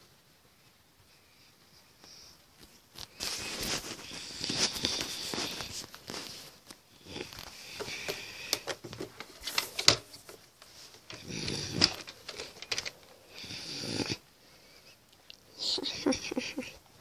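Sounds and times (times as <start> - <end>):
objects handled clicking and rustling: 2.6 - 13.1.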